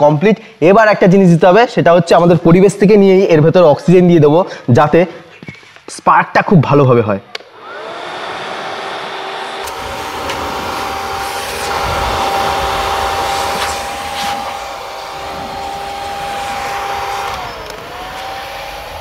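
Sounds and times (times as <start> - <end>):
electric air blower whining: 7.4 - 19.0.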